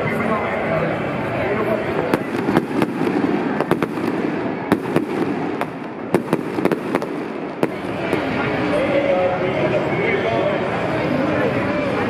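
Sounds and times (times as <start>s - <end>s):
fireworks bangs and crackles: 1.8s - 9.1s.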